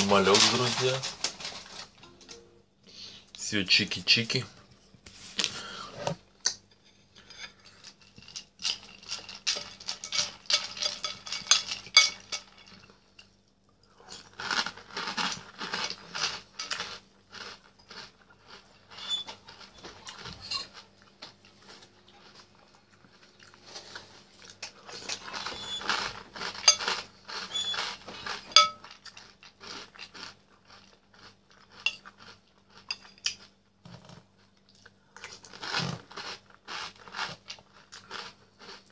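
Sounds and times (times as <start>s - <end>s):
cereal being chewed: 7.7s - 38.9s
spoon clinking against a bowl: 28.5s - 28.8s.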